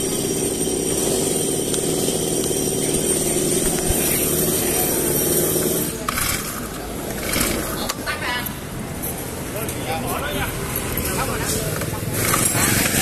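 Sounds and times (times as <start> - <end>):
brush cutter engine idling: 0.0 - 8.2, 11.4 - 13.0.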